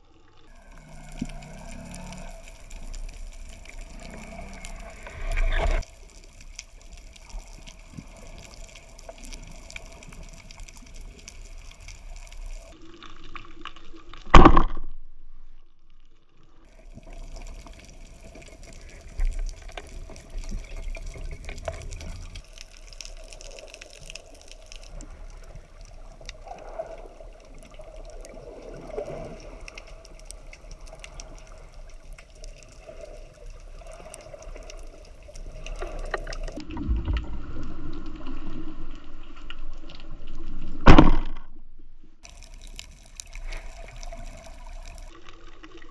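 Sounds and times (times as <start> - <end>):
crackling clicks: 0.3 - 15.1, 15.7 - 41.6, 42.2 - 45.9
underwater hiss: 0.5 - 6.3, 42.3 - 45.1.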